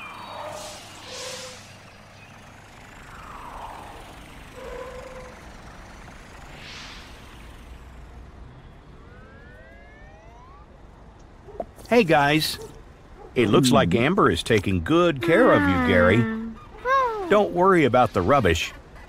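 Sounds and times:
cartoon truck engine humming: 0.0s - 19.0s
truck whooshing past: 0.3s - 10.6s
rising siren-like wail: 2.6s - 11.2s.

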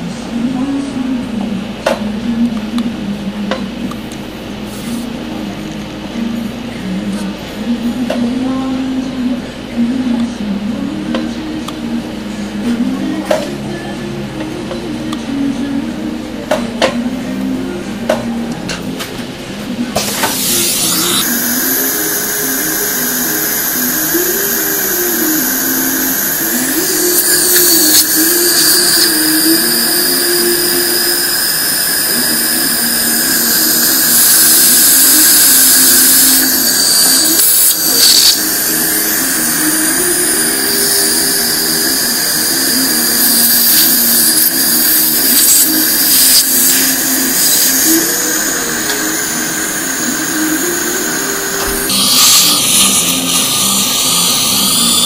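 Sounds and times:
dental suction hissing: 20.0s - 55.0s.

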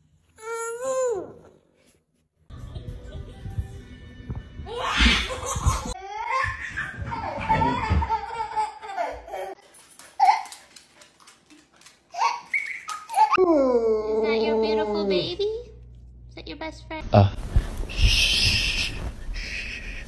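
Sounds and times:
young children laughing: 4.7s - 9.6s.

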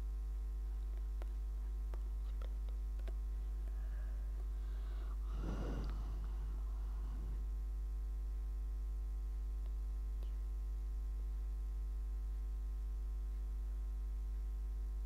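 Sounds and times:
steady electrical hum: 0.0s - 15.0s
breath into microphone: 3.6s - 7.6s.

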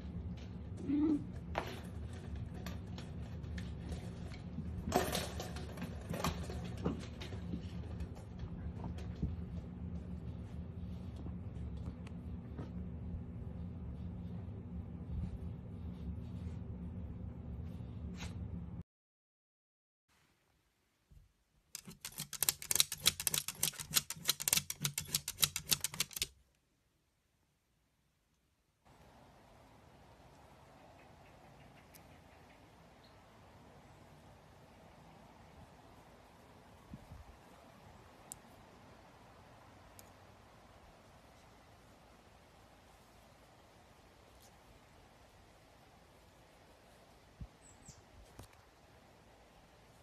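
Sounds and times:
steady low hum: 0.0s - 18.8s
rapid sharp clicks: 21.7s - 26.4s.

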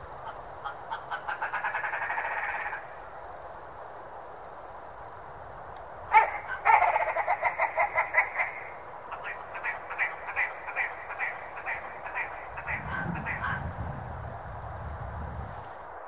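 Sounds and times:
grouse calling: 0.0s - 3.1s, 6.1s - 13.8s.

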